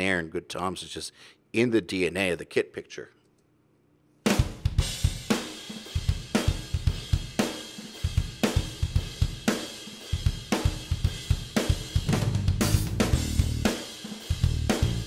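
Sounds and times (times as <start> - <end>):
drum kit playing a beat: 4.3 - 15.0
bass guitar: 12.0 - 13.7, 14.3 - 15.0.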